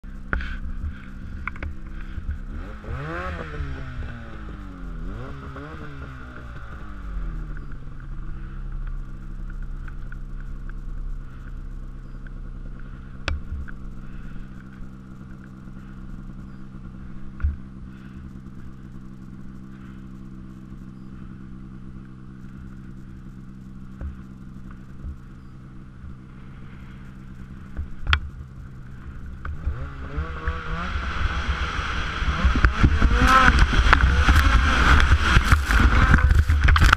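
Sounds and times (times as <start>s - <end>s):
snowmobile engine: 0.0s - 36.9s
isolated clicks: 12.0s - 12.4s, 13.2s - 13.8s.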